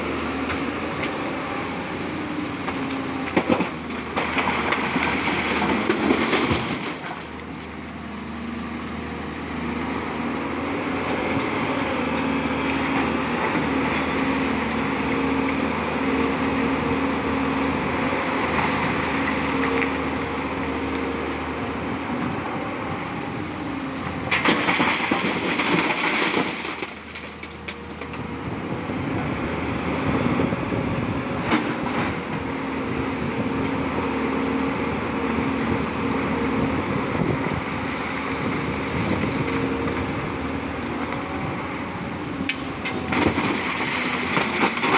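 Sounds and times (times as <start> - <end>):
excavator engine humming: 0.0 - 44.9
rocks clattering: 24.3 - 27.2.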